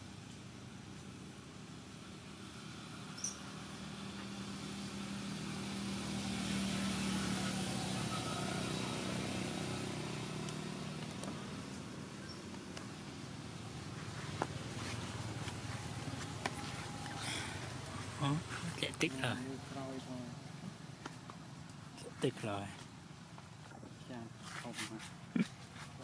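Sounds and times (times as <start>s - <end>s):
vehicle engine passing by: 2.4s - 21.0s.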